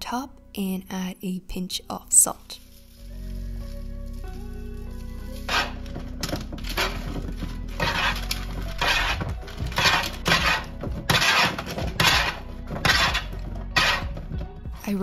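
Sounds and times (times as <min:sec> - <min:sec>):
background music: 0:00.0 - 0:15.0
forks scraping a baking pan: 0:05.3 - 0:14.3.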